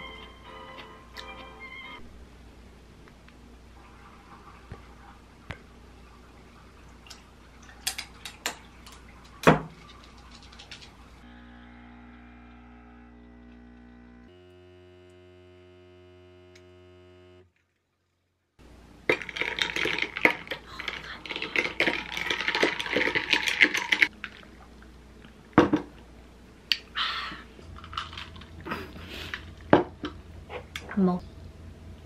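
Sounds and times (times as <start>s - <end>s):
espresso machine pump buzzing: 11.2s - 17.4s.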